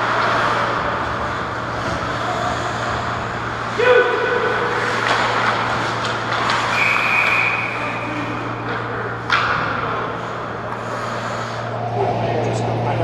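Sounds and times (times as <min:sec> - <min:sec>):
low hum and skating noise: 0:00.0 - 0:13.0
referee's whistle: 0:06.7 - 0:07.9.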